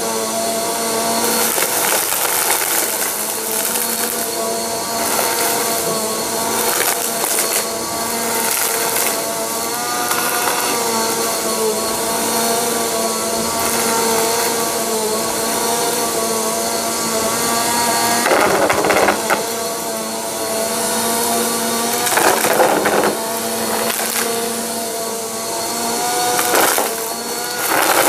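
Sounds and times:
vacuum cleaner running on carpet: 0:00.0 - 0:28.0.

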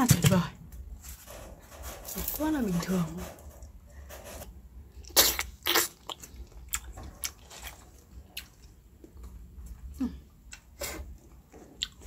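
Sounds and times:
teeth cracking fruit rind: 0:05.0 - 0:08.8
chewing: 0:05.0 - 0:12.0.

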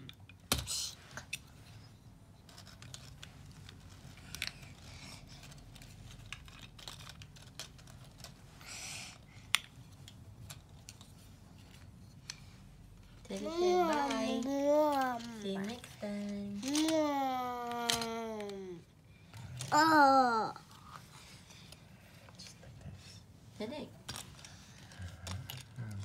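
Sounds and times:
toy trucks clacking on carpet: 0:02.5 - 0:08.4, 0:13.2 - 0:18.8, 0:24.1 - 0:26.0.

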